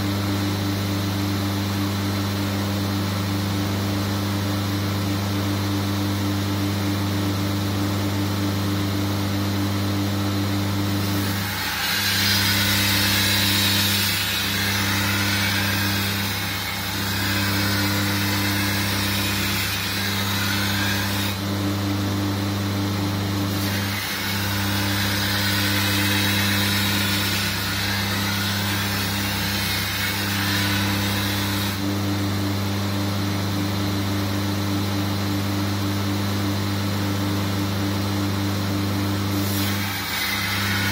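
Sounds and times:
blade grinding on belt hissing: 10.8s - 32.0s, 39.2s - 40.9s
belt grinder humming: 10.9s - 32.1s, 39.1s - 40.9s.

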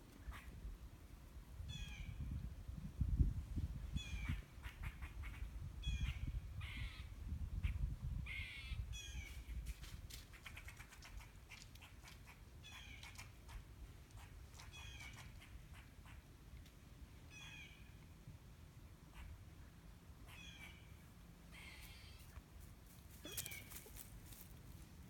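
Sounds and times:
wind rumble on microphone: 0.0s - 11.3s.

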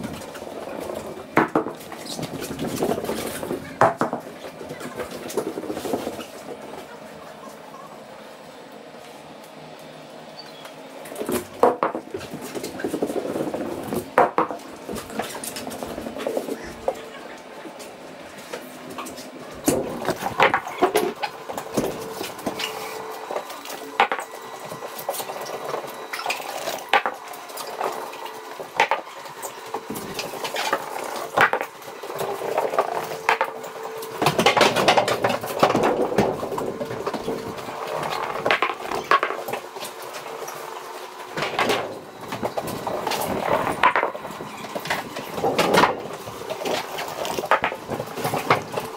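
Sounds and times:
rumbling scraping tyres: 41.3s - 48.9s.

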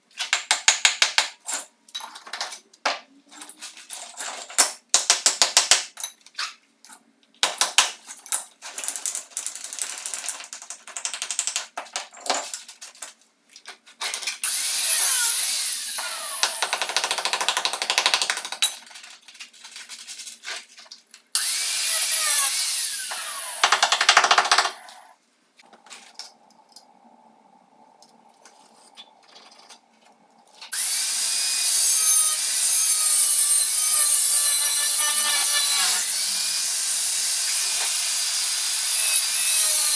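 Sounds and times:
angle grinder cutting: 14.4s - 16.7s, 21.4s - 23.7s, 30.7s - 39.9s.

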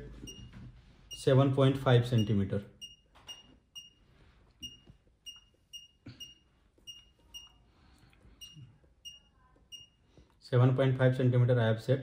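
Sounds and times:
electronic key beeps: 0.1s - 7.6s, 8.3s - 10.0s.

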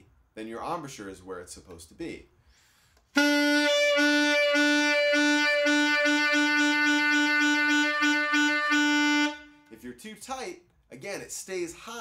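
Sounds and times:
alto saxophone trilling: 3.1s - 9.7s.

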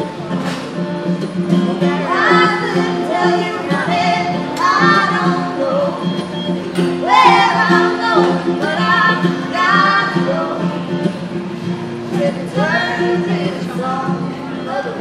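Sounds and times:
strummed acoustic guitar: 0.0s - 15.0s
woman singing: 1.8s - 6.3s, 7.0s - 11.0s, 12.1s - 14.3s.

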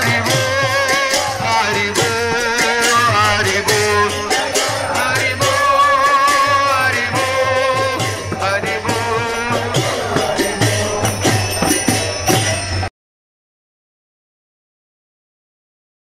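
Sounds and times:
group singing devotional song: 0.0s - 12.5s
jingling percussion: 0.0s - 12.9s.

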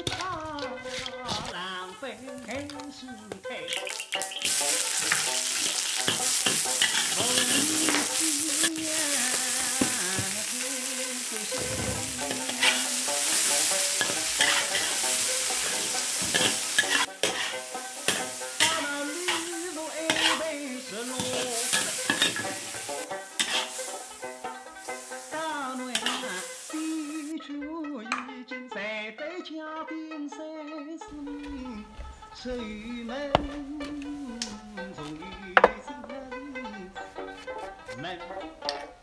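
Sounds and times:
soft background music: 0.0s - 39.0s
food sizzling in a wok: 3.4s - 27.3s
clicks and scrapes in pan: 16.3s - 18.2s, 23.4s - 23.7s.

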